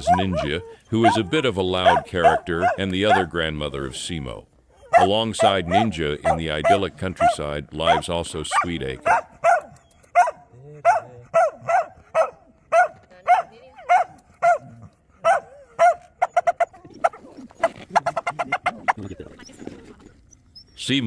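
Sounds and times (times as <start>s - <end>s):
dog barking: 0.0s - 3.4s, 4.8s - 17.2s.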